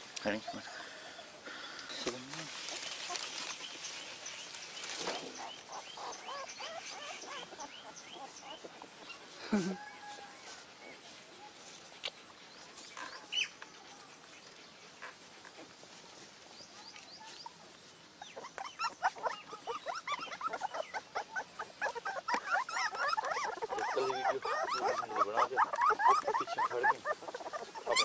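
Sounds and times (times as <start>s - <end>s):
puppies squealing and whining: 5.4s - 10.3s, 18.2s - 28.0s.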